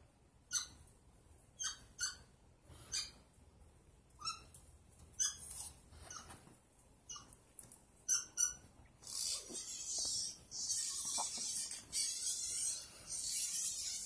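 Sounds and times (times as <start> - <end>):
dog yipping: 0.5 - 0.8, 1.6 - 2.3, 5.2 - 6.4, 7.1 - 7.4, 8.0 - 14.0.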